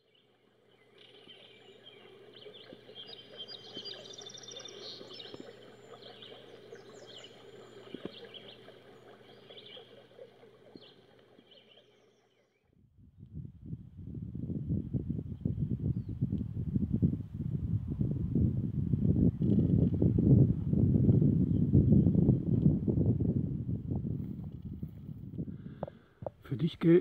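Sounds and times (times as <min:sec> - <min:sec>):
songbirds chirping and singing: 0:00.0 - 0:12.5.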